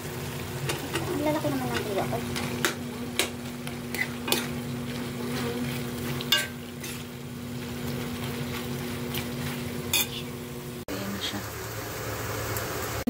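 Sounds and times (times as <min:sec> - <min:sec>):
food sizzling in pan: 0:00.0 - 0:13.0
spoon clinking against pan: 0:06.3 - 0:06.6.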